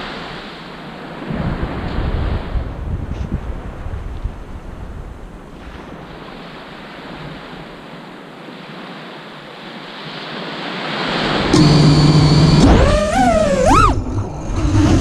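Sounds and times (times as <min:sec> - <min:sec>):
wind buffeting microphone: 0:00.0 - 0:08.9
ocean surf washing on beach: 0:00.0 - 0:15.0.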